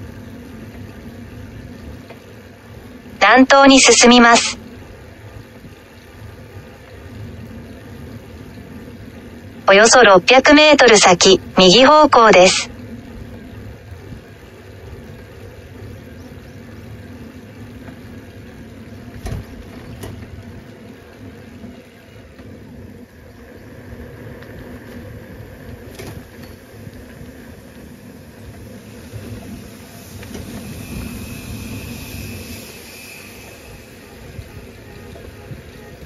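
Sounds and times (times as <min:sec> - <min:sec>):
tyres rolling on road: 0:00.0 - 0:03.2, 0:04.6 - 0:09.6, 0:12.7 - 0:36.0
faint high steady tone: 0:03.2 - 0:04.6, 0:09.7 - 0:12.7.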